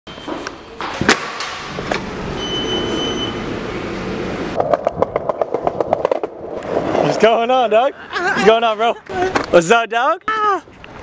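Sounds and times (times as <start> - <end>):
skateboard wheels rolling: 4.5 - 7.8
wheels clacking over rough pavement: 4.6 - 7.6.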